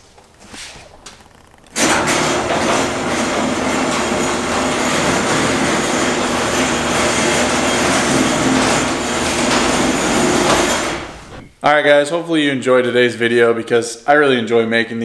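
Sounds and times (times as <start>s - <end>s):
garage door opener rumbling: 0.3s - 11.5s.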